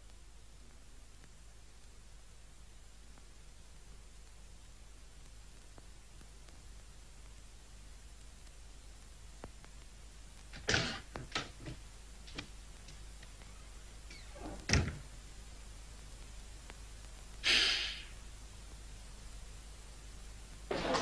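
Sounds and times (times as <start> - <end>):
door closing thud: 14.4 - 15.1, 20.7 - 21.0
short hissing: 17.4 - 18.2.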